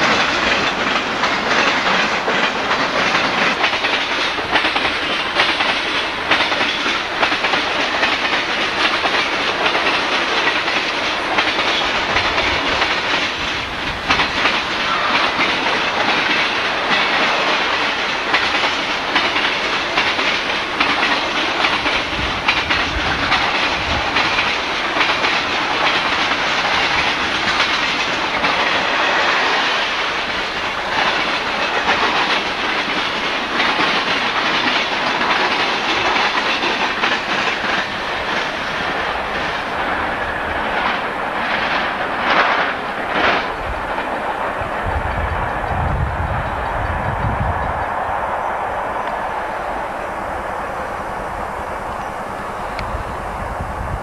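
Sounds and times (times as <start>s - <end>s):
freight train wheels clattering: 0.0s - 54.0s.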